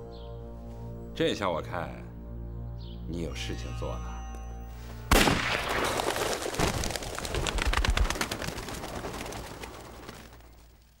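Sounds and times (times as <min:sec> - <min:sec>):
pigeons flapping wings: 0:05.8 - 0:11.0.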